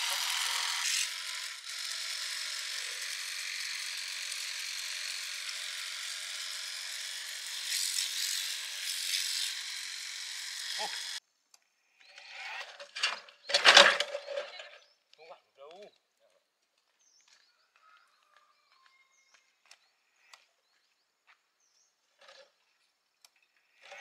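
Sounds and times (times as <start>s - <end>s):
power tool motor whirring: 0.0s - 11.2s, 12.0s - 14.8s, 23.2s - 24.0s.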